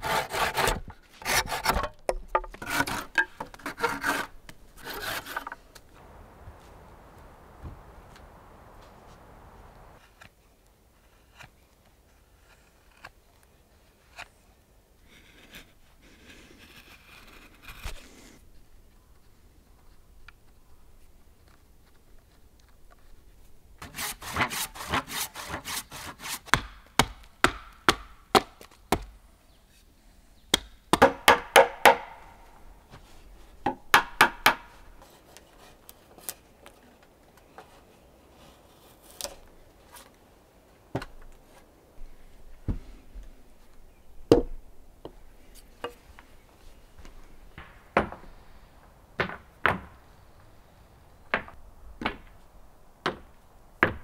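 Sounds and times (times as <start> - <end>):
hand tools scraping wood: 0.0 - 5.8, 23.8 - 26.7
sharp strikes on wood: 26.2 - 29.1, 30.5 - 32.4, 33.6 - 34.7.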